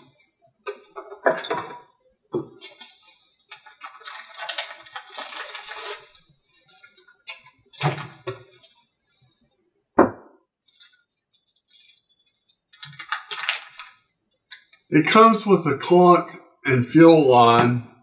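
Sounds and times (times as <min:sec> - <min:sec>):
cardboard packaging rustling: 0:02.6 - 0:08.8, 0:11.7 - 0:14.0.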